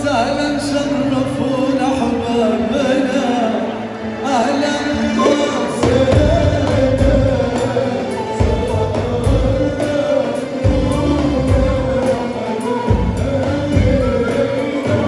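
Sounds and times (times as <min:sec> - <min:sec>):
live pop band: 0:00.0 - 0:15.0
man singing: 0:00.0 - 0:15.0
drum and bass beat: 0:05.8 - 0:15.0.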